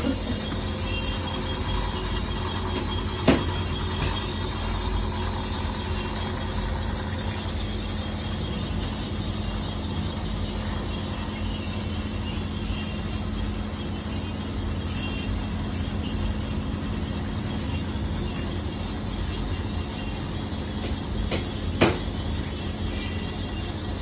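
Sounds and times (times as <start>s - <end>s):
boring machine motor hum: 0.0s - 24.0s.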